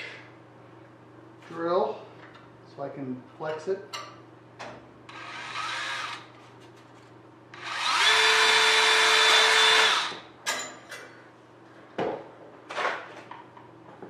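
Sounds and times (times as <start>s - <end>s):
cordless drill whining: 5.1s - 6.3s, 7.6s - 10.2s.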